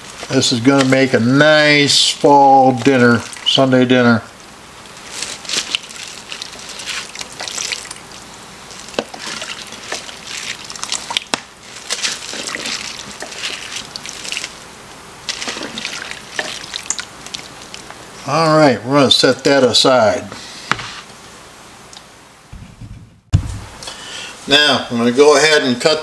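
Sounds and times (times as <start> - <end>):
broth sloshing and dripping: 3.2 - 3.6, 5.2 - 14.6, 15.2 - 17.9.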